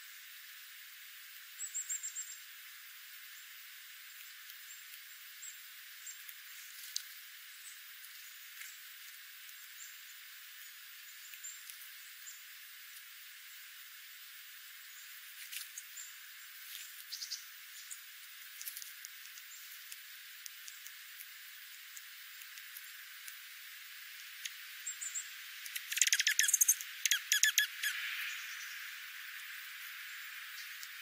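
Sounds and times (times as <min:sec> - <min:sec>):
faint scattered ticks: 0:00.0 - 0:31.0
brief high bird chips: 0:25.8 - 0:28.0.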